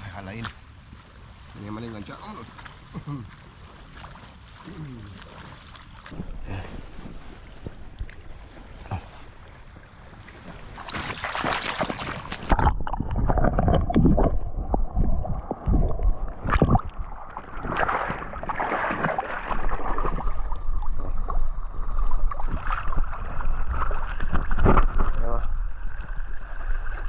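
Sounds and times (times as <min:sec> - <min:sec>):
water sloshing and gurgling: 0:00.0 - 0:27.0
water splashing: 0:00.0 - 0:27.0
wind rumble on microphone: 0:06.1 - 0:11.1, 0:11.8 - 0:18.5.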